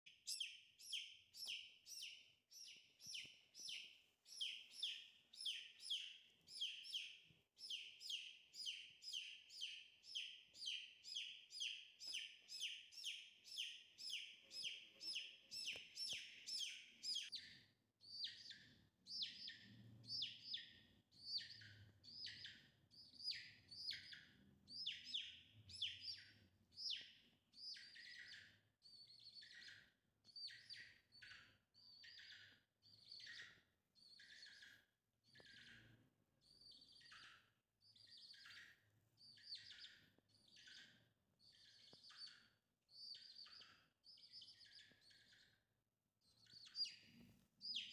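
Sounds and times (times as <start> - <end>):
chick peeping: 0.3 - 17.5, 18.1 - 29.8, 39.3 - 40.9, 46.4 - 47.9.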